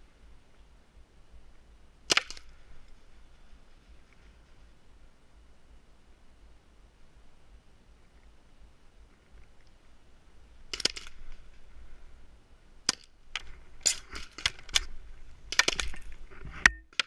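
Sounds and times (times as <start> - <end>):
paintball pistol shots popping: 2.1 - 2.6, 10.7 - 11.3, 12.8 - 14.9, 15.5 - 16.1.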